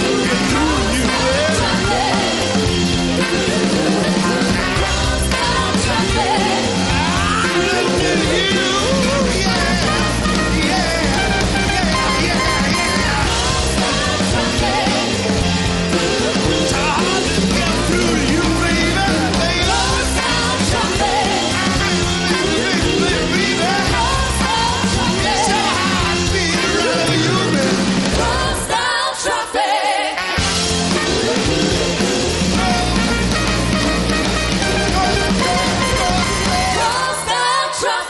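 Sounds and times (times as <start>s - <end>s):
man and woman singing: 0.0s - 2.6s, 3.2s - 30.3s
live rock band playing: 0.0s - 28.7s, 30.1s - 37.3s.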